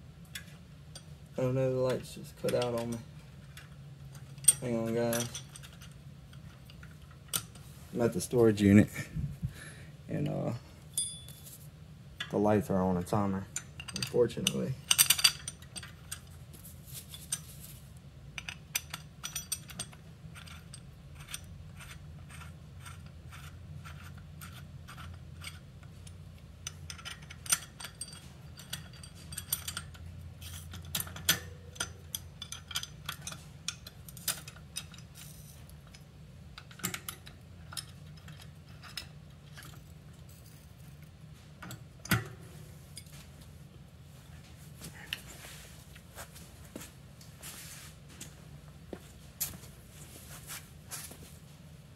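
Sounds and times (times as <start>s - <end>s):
steady low hum: 0.0s - 51.9s
metal parts clicking and clinking: 1.8s - 7.6s, 13.5s - 17.7s, 18.4s - 43.2s.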